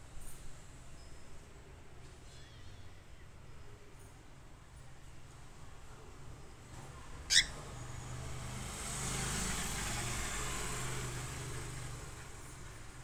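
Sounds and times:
cockatiel chirp: 7.3s - 7.6s.

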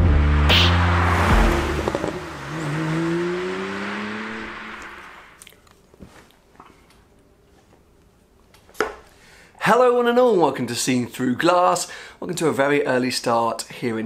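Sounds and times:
car engine revving whine: 0.0s - 5.4s
rush of noise: 0.0s - 5.4s.

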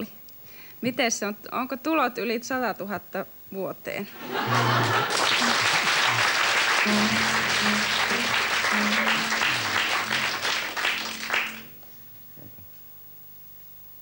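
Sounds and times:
audience applauding: 4.2s - 12.1s
piano notes: 5.4s - 12.6s.

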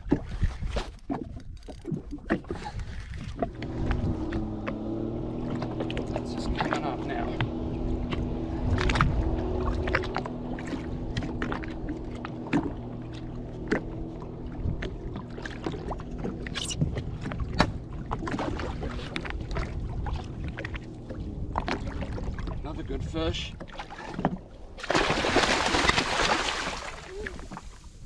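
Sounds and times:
water splashing: 0.0s - 28.0s
low engine hum: 1.3s - 28.0s.

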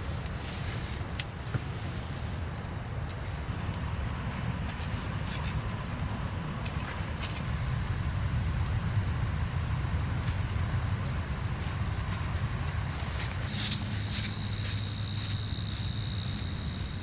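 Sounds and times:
low background rumble: 0.0s - 17.0s
high-pitched insect drone: 3.5s - 17.0s.

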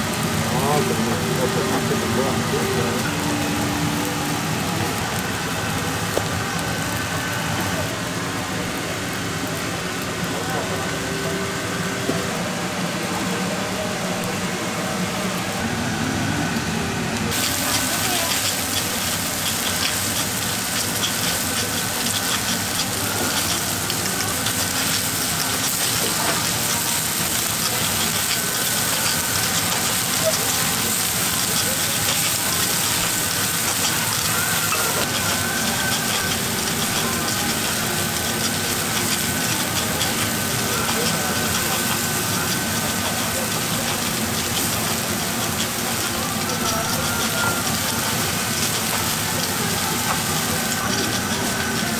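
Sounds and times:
batter sizzling on griddle: 0.0s - 11.0s, 17.3s - 51.9s
thin steady whine: 0.0s - 51.9s
metal picks clicking and scraping: 31.0s - 37.8s.

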